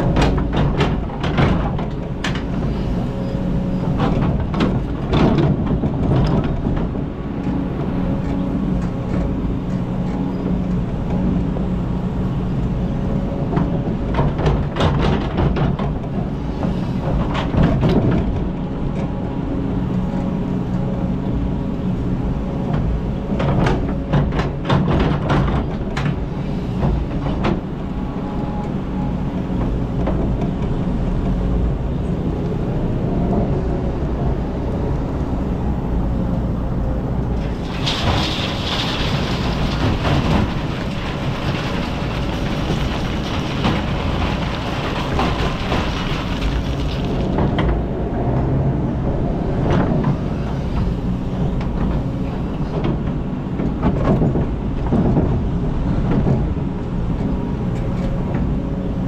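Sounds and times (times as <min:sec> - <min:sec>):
excavator diesel engine running: 0:00.0 - 0:59.0
bucket scraping and clattering: 0:37.4 - 0:47.4.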